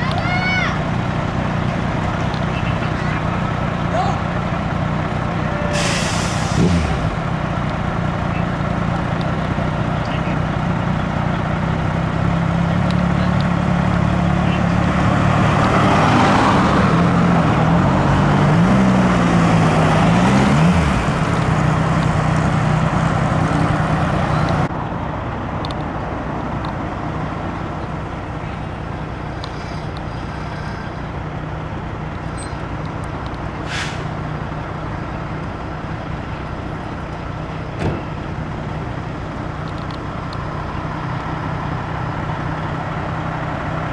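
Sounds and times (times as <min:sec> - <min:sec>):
street traffic: 0:00.0 - 0:43.9
short hiss: 0:05.8 - 0:06.7, 0:33.6 - 0:34.1.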